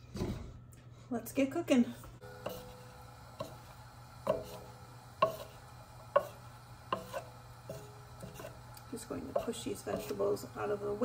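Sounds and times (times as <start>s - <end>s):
wooden spatula scraping a pot: 2.2s - 11.0s.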